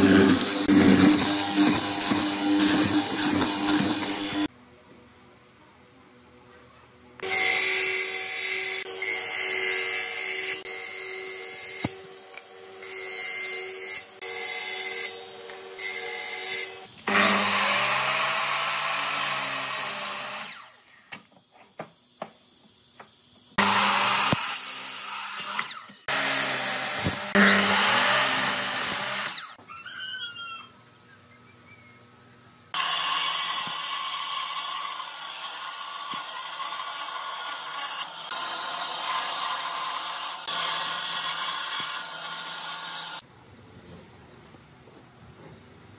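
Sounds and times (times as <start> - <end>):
miter saw cutting wood: 0.0 - 4.5, 7.2 - 20.8, 23.6 - 29.6, 32.8 - 43.2
power tool bursts: 0.0 - 4.5.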